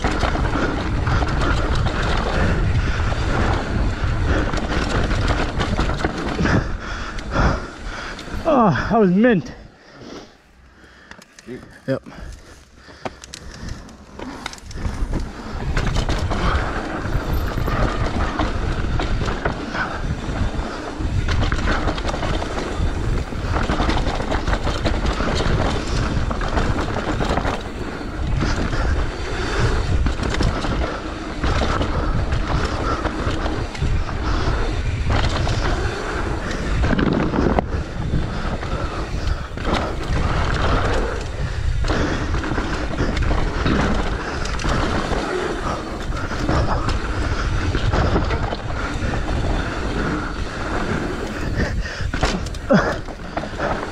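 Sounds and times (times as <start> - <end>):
bike rattling and knocking: 0.0 - 9.6, 11.2 - 53.9
bike tyres on dirt: 0.0 - 53.9
wind on microphone: 14.6 - 53.9.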